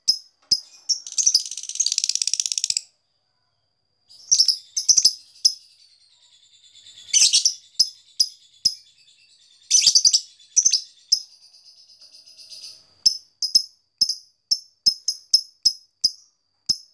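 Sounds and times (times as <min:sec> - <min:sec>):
lovebird high chirps: 0:00.0 - 0:03.5, 0:04.1 - 0:16.9
bird chattering bursts: 0:00.5 - 0:02.8.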